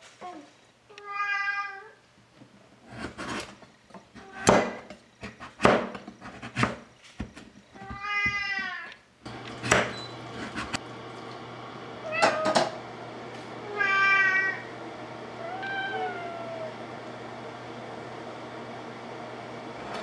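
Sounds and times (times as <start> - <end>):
cat meowing: 1.0 - 2.0, 13.6 - 14.7, 15.4 - 16.7.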